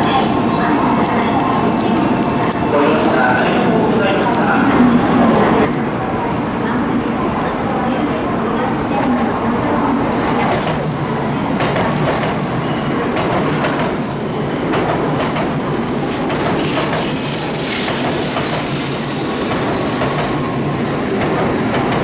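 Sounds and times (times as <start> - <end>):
train rolling noise: 0.0 - 22.0
train wheels clicking over rails: 10.4 - 22.0.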